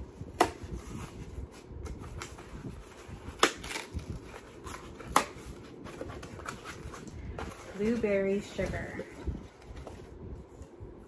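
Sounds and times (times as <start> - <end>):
packaging rustling: 0.6 - 10.1
packaging crinkle: 0.7 - 8.7.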